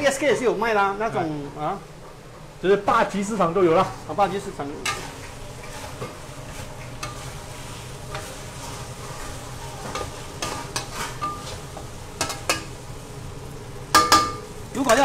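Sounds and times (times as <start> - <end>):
paste sizzling: 3.1 - 15.0
metal spatula scraping a wok: 4.8 - 12.8
spatula clinking against wok: 13.9 - 15.0.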